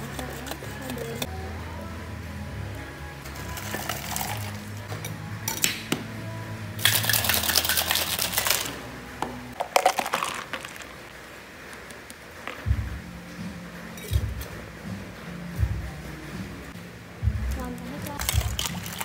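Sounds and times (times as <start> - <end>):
metal shaker tins clinking: 3.3 - 4.7, 6.8 - 8.8, 18.2 - 19.0
shaker contents rattling: 3.4 - 4.6, 6.8 - 8.8, 9.6 - 11.0, 18.2 - 19.0.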